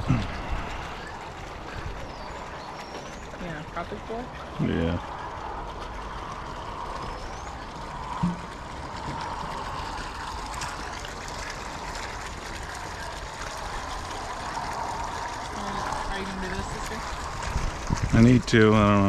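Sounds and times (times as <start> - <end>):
water trickling and splashing: 0.0 - 19.0.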